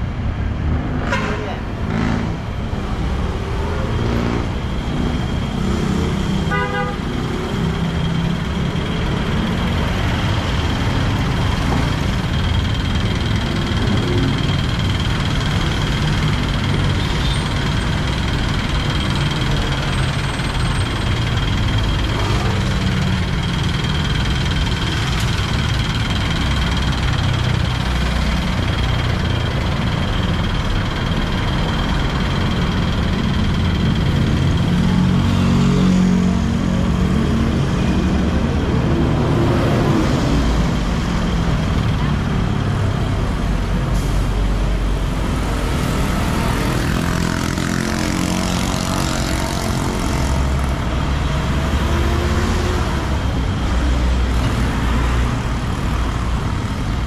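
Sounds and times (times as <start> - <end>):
car and motorcycle engines passing: 0.0 - 17.4, 44.8 - 56.9.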